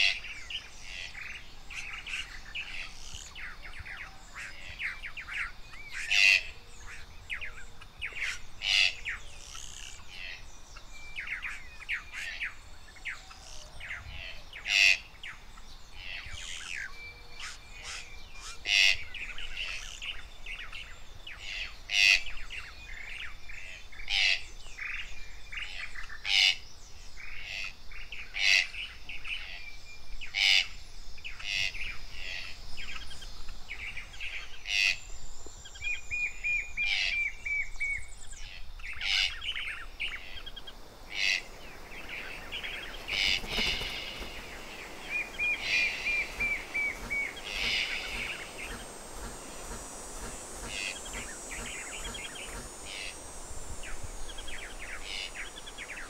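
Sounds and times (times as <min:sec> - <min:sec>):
tropical forest birds chirping: 0:00.0 - 0:56.0
quick run of bird notes: 0:40.8 - 0:56.0.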